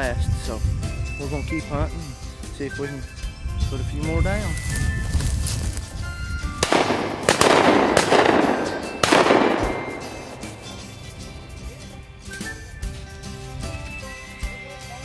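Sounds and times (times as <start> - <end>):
background music: 0.0 - 15.0
shotgun blasts: 6.6 - 11.3.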